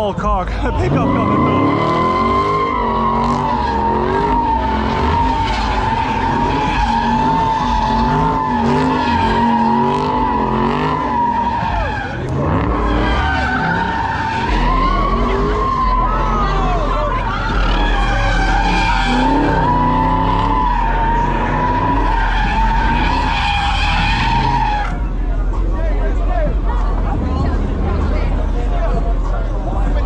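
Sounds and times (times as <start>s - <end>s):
car engine revving: 0.0s - 30.0s
tire squeal: 0.8s - 25.6s.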